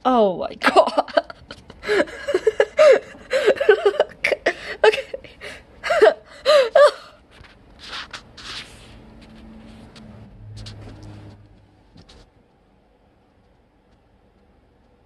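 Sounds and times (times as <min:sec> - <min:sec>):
person squealing and giggling: 0:01.0 - 0:07.2.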